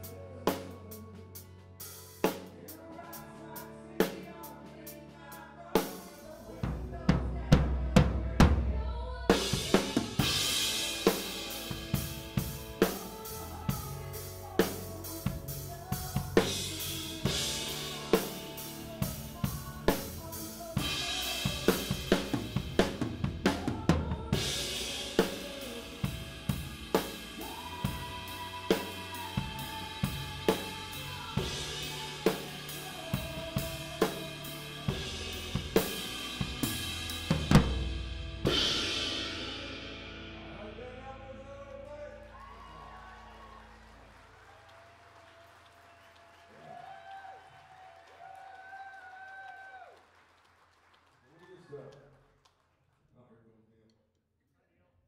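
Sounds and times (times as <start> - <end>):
drum kit playing: 0.0 - 41.5
band playing country ballad: 0.0 - 43.6.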